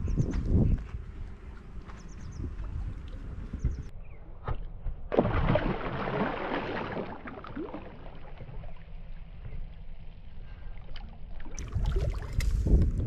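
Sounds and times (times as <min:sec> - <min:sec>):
water sloshing and swirling: 0:05.1 - 0:09.7, 0:10.6 - 0:12.8.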